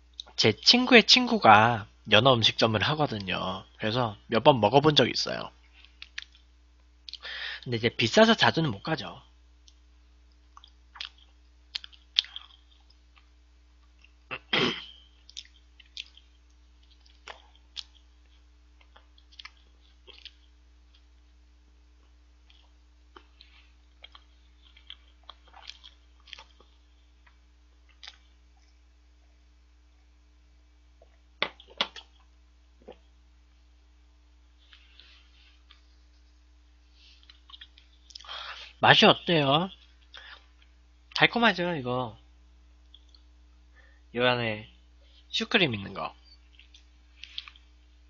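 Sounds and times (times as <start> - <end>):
faint electrical hum: 0.0 - 48.0
person chewing: 5.7 - 7.2, 9.6 - 21.3, 22.0 - 28.9, 31.0 - 33.2, 37.0 - 38.7, 42.8 - 43.3, 46.3 - 48.0.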